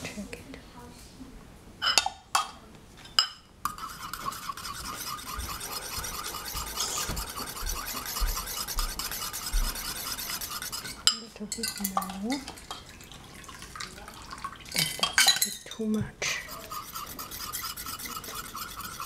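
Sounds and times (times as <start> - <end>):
whisk scraping round bowl: 3.6 - 12.7, 16.2 - 19.0.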